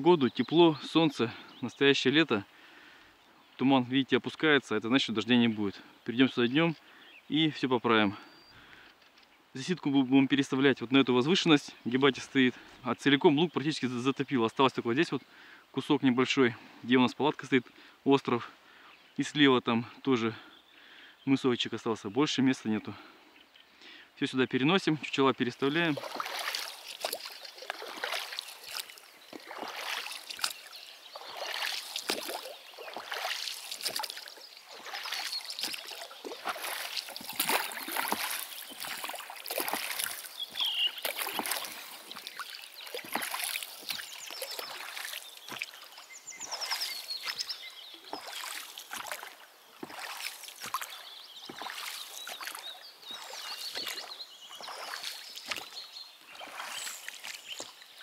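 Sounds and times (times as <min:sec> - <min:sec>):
paddle splashing in water: 0:25.7 - 0:58.0.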